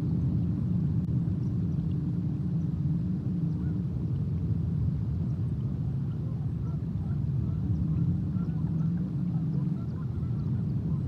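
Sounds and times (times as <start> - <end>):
distant bird calls: 6.1 - 11.0.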